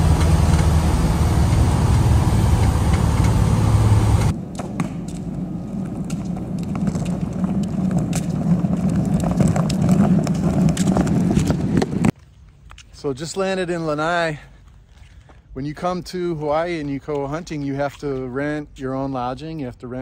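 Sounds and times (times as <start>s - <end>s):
small plane engine running: 0.0s - 4.4s
wheeled cases rattling on concrete: 5.3s - 12.1s.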